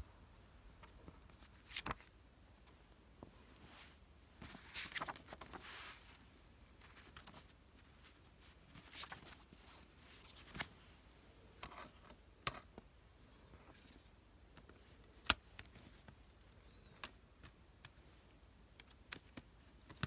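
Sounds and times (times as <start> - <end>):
paper booklet rustling: 0.8 - 2.2, 3.4 - 11.0.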